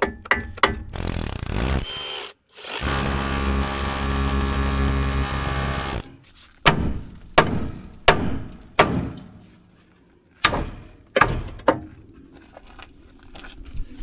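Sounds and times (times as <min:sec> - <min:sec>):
hammer striking steel: 0:06.6 - 0:09.4.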